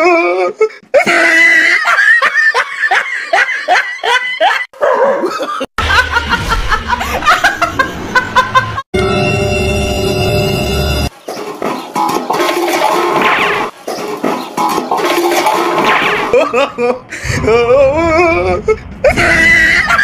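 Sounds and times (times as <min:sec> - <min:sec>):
woman laughing: 0:01.0 - 0:08.8, 0:16.3 - 0:17.1
hearty laughter: 0:01.0 - 0:08.9, 0:16.3 - 0:17.4, 0:19.0 - 0:20.0.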